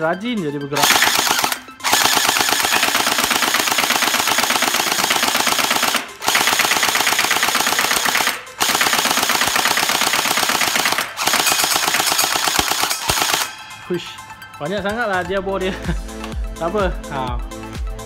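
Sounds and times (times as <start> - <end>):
gel blaster firing full auto: 0.8 - 13.6.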